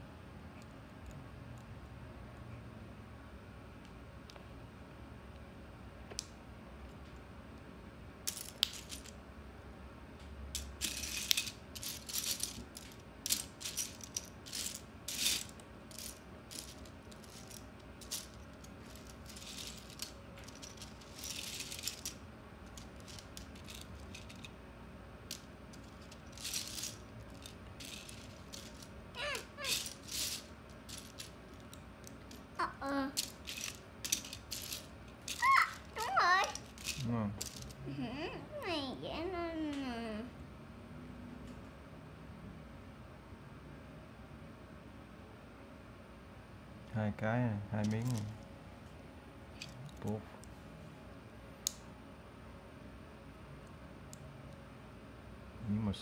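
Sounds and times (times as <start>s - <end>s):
plastic bricks rattling: 10.8s - 24.5s, 25.3s - 31.7s, 33.2s - 37.7s.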